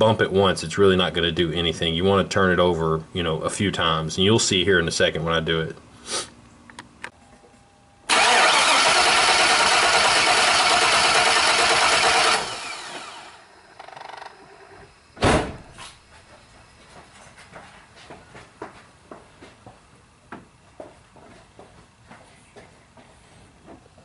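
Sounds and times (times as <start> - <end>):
engine cranking on starter: 8.1 - 14.9
engine running: 8.1 - 15.0
single thump: 15.2 - 15.9.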